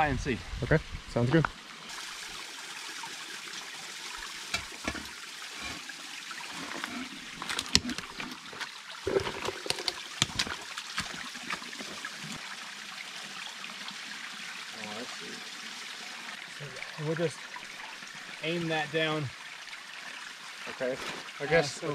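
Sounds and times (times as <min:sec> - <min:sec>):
creek trickling over rocks: 0:01.1 - 0:21.9
bucket and pipe knocking: 0:04.5 - 0:05.8, 0:06.6 - 0:11.6.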